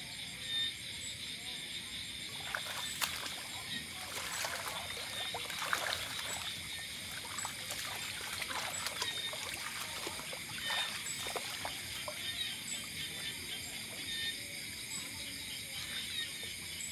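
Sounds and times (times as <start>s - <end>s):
water splashing from wading: 2.3s - 14.3s.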